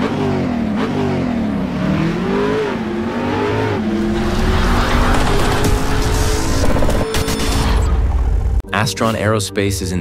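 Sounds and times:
car engine revving: 0.0 - 8.6.

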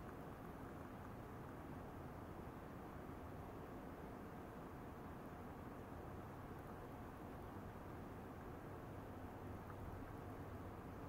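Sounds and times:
background hiss: 0.0 - 11.0.

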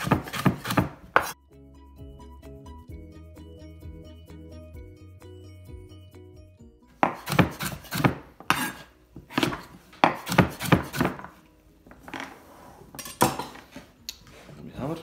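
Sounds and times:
knife chopping on wooden board: 0.0 - 1.4, 7.0 - 11.3.

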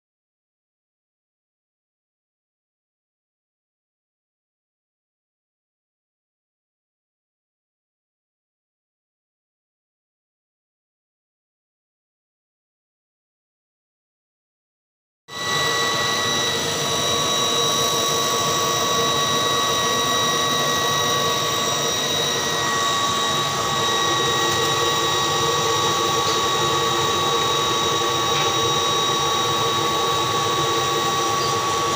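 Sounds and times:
laser engraving machine whine: 15.3 - 31.9.

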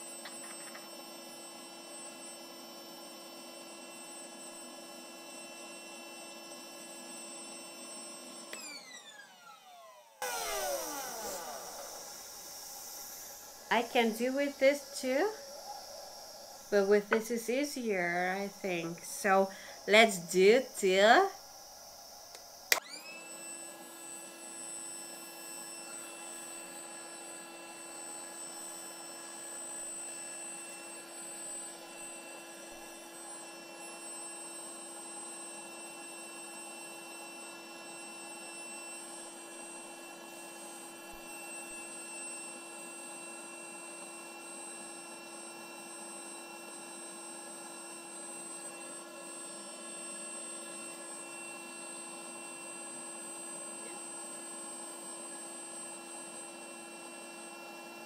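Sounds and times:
air compressor humming: 10.2 - 22.8.

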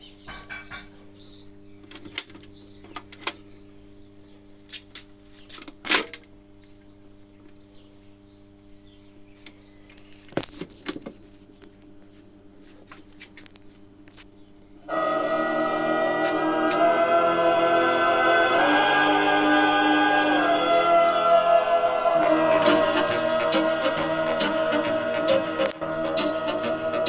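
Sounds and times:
steady hum: 13.5 - 27.0.

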